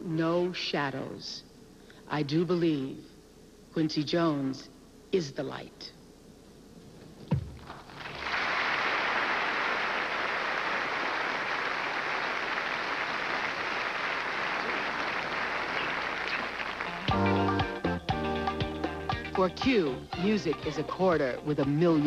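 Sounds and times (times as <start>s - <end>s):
large audience applauding: 7.7s - 17.4s.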